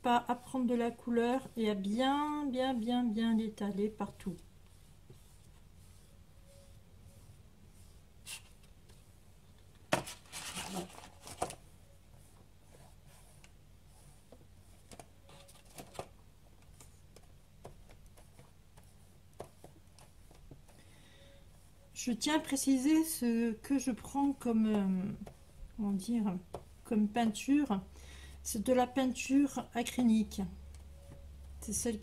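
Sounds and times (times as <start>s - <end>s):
paintbrush scraping cardboard: 0.6s - 9.1s, 10.0s - 11.3s
rustle of newspaper: 10.0s - 11.5s.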